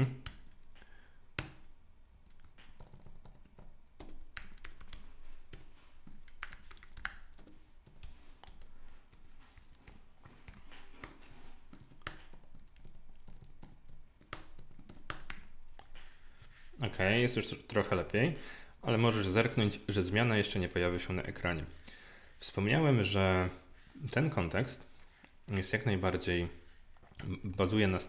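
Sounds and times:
keyboard typing clicks: 1.4 - 15.5.

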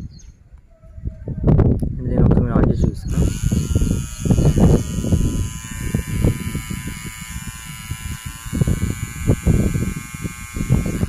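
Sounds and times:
hair trimmer buzzing: 3.1 - 11.0.

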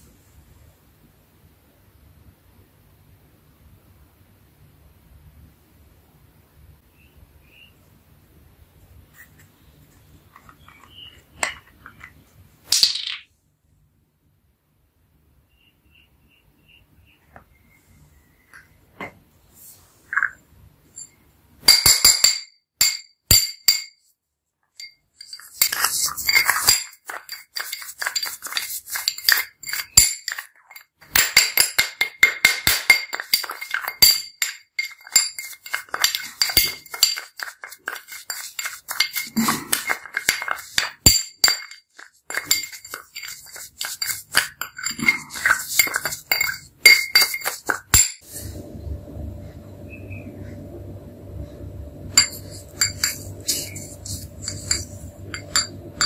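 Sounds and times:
spoon scraping glass bowl: 10.3 - 12.1, 24.8 - 48.6, 52.2 - 56.0.

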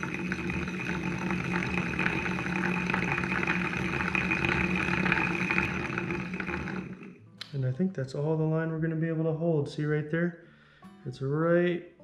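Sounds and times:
fishing reel whirring: 0.0 - 7.2.

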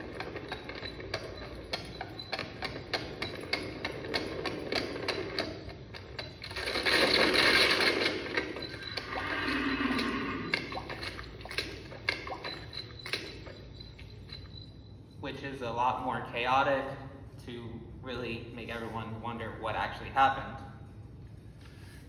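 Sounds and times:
galloping hoofbeats: 0.0 - 14.6
wheels clattering: 0.0 - 14.9.

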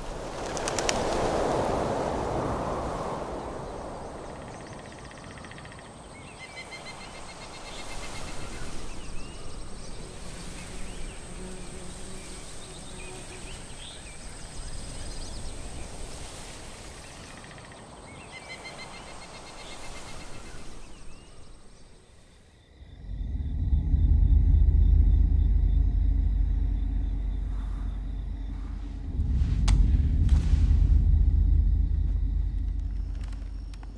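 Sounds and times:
high insect drone: 2.8 - 33.9
insects trilling in pulsed bursts: 3.6 - 33.9
deep rumble: 22.8 - 33.9.

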